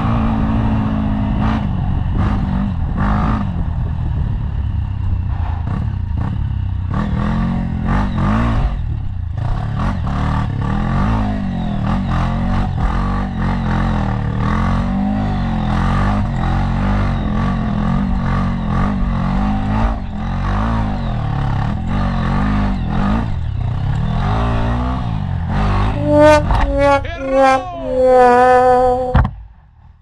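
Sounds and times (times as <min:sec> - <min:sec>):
dirt bike engine revving: 0:05.7 - 0:29.2.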